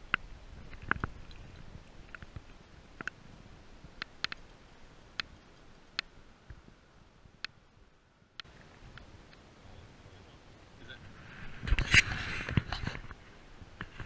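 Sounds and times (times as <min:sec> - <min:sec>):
sharp irregular clicks: 0:04.0 - 0:06.6.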